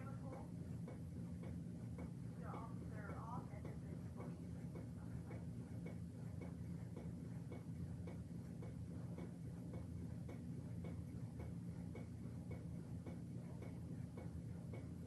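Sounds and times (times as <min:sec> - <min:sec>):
faint regular ticking: 0:00.0 - 0:15.0
low hum of room tone: 0:00.0 - 0:15.0.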